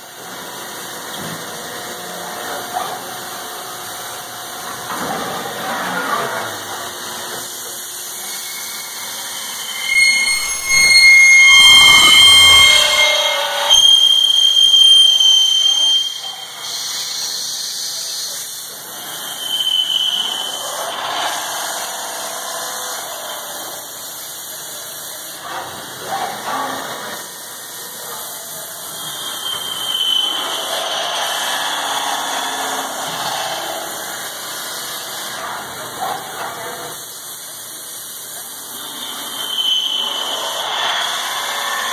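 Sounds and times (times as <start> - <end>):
machine running noise: 0.0 - 17.3, 18.3 - 36.9
drill bit squealing in steel: 7.8 - 18.2, 19.0 - 20.9, 28.8 - 34.2, 38.8 - 41.9.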